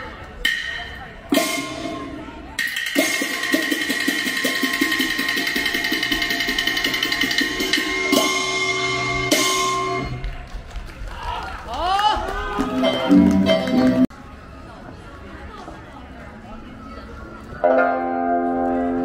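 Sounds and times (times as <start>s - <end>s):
ringing gongs and cymbals: 0.4s - 10.2s
drum strokes: 0.4s - 10.3s
cymbal crashes: 0.5s - 10.1s.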